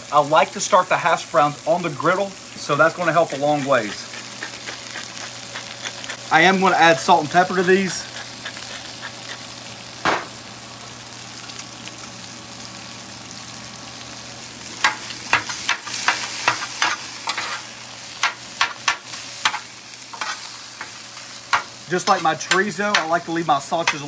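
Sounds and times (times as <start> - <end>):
food sizzling on a griddle: 0.0 - 24.0
metal spatula scraping griddle: 3.6 - 9.5, 15.3 - 17.7, 19.4 - 21.0, 21.6 - 23.2
single knock: 10.0 - 10.4.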